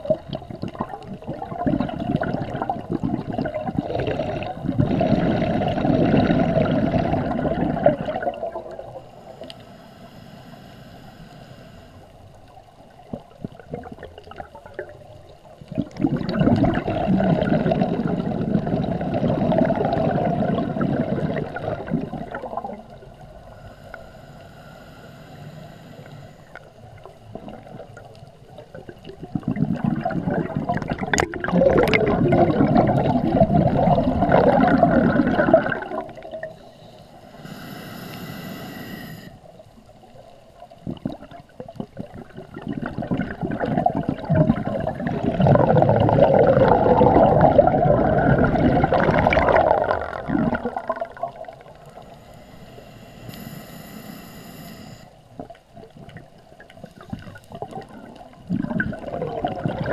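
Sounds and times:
exhaled bubbles gurgling: 0.0 - 9.5, 12.5 - 23.7, 26.0 - 59.9
diver inhaling through regulator: 9.0 - 12.1, 23.4 - 26.6, 34.3 - 39.5, 51.8 - 55.2.

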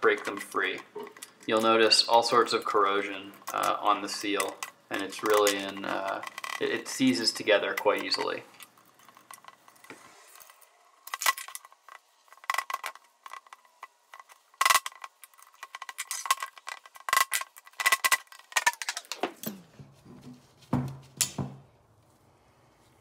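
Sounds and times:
metal parts clanking: 4.3 - 19.5.

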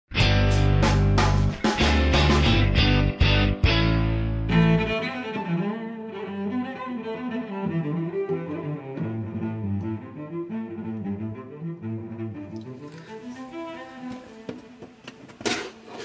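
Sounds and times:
slow background music: 12.2 - 15.1.

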